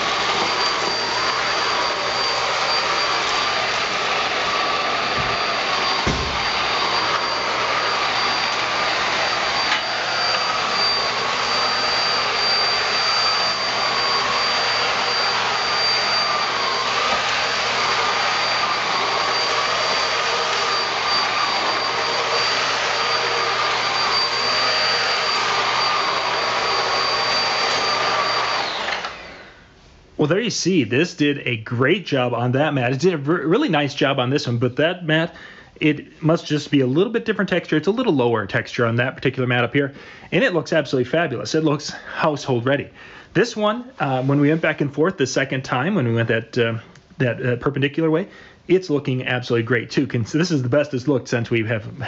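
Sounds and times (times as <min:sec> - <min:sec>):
vacuum cleaner running on carpet: 0:00.0 - 0:29.5.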